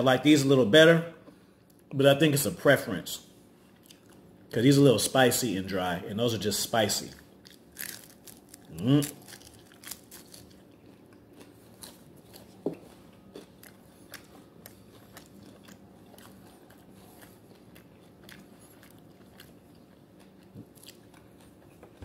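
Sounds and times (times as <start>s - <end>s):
person chewing: 3.6s - 4.4s, 7.4s - 22.0s.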